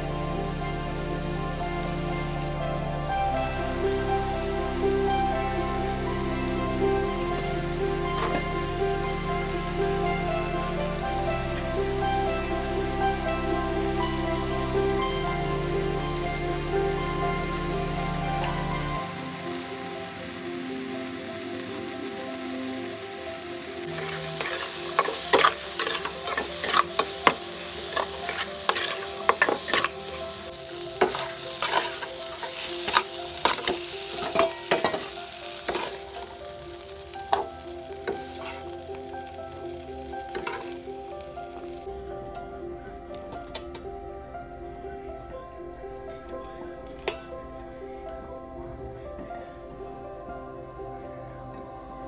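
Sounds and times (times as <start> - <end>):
food sizzling in a pan: 0.0 - 41.9
spatula scraping a pan: 24.0 - 30.2, 31.0 - 36.1.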